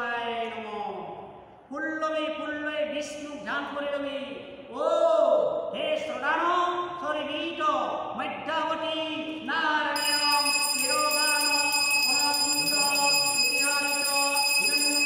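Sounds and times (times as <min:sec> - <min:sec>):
person chanting: 0:09.7 - 0:15.0
steady high ringing tone: 0:10.0 - 0:15.0.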